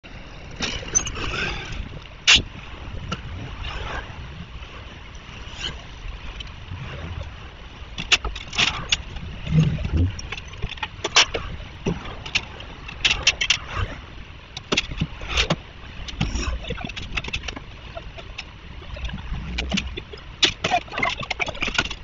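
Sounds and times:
low vehicle rumble: 0.0 - 13.0.

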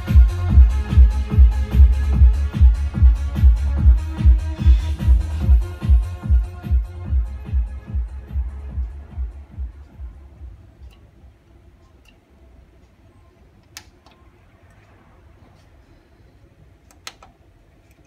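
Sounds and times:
electronic dance music bass beat: 0.0 - 11.4.

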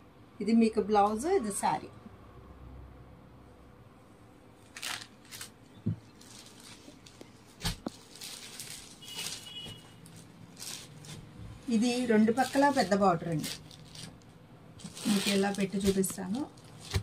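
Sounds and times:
fabric rustling: 4.6 - 14.2, 14.8 - 17.0.

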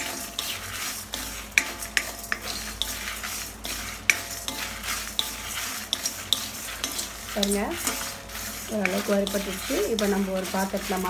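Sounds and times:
spatula scraping metal pan: 0.0 - 11.0.

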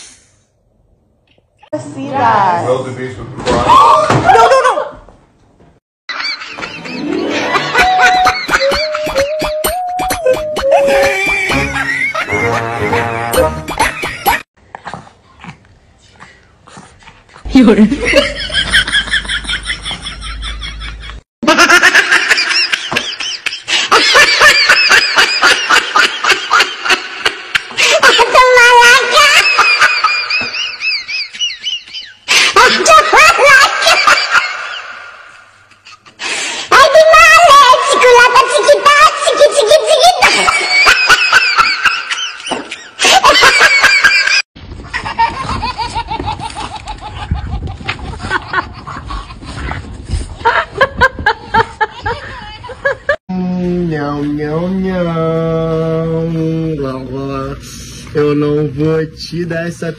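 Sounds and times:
high-pitched laughter: 6.2 - 14.4, 27.8 - 36.2, 36.8 - 49.4
wavering high voice: 7.1 - 11.9.

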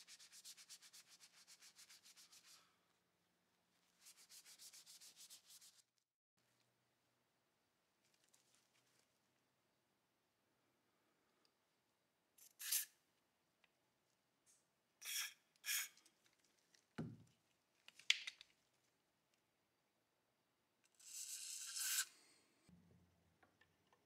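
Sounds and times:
aerosol can hissing: 15.0 - 15.9, 21.0 - 22.2.

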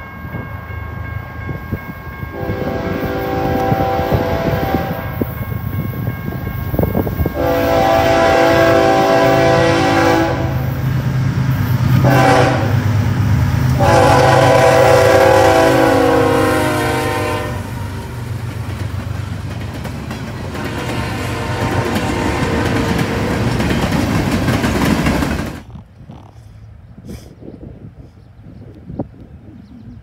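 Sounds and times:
locomotive chime air horn: 1.5 - 5.3, 7.2 - 10.7, 12.0 - 12.8, 13.8 - 17.8.

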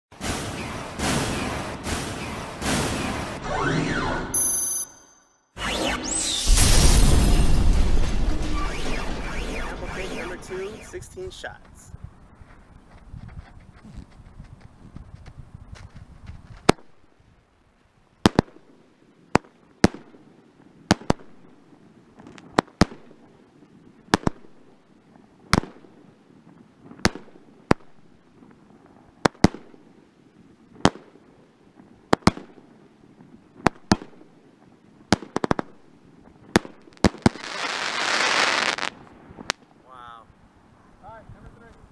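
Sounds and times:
firework cake bangs: 0.2 - 3.4.

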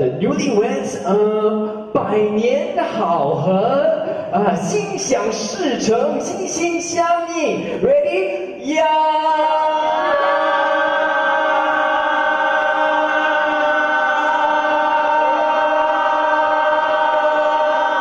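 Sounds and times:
crowd shouting in unison: 8.9 - 18.0.

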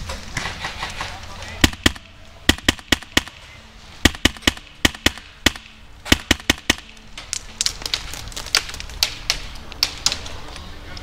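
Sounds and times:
airsoft guns firing: 0.4 - 3.4, 4.0 - 7.0.

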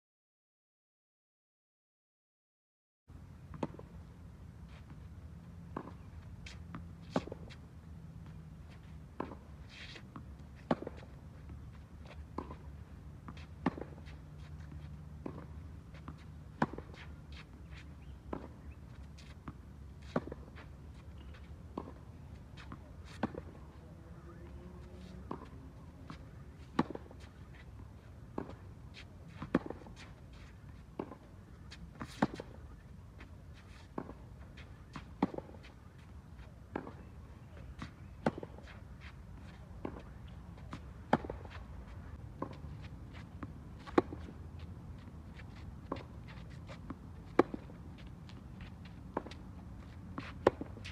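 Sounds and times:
tennis ball bouncing: 5.7 - 7.6, 8.2 - 50.9
racket striking tennis ball: 12.1 - 32.8, 33.6 - 35.7, 37.8 - 50.9.

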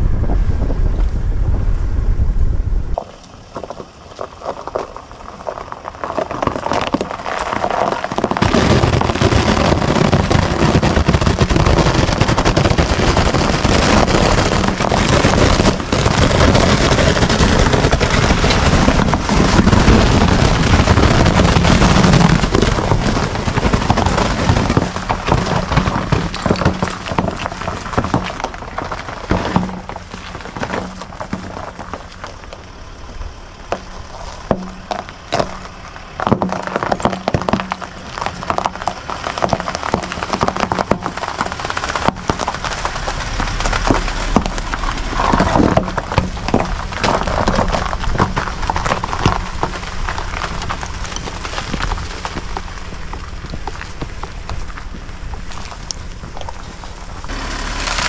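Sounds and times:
steady low hum: 0.0 - 4.4
tyres crunching over ice: 3.0 - 58.0.

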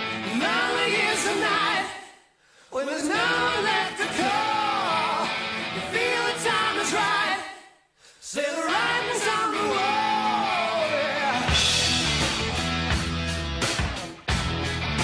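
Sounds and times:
song with singing voice: 0.0 - 12.6
drum beat with bass: 11.4 - 15.0.

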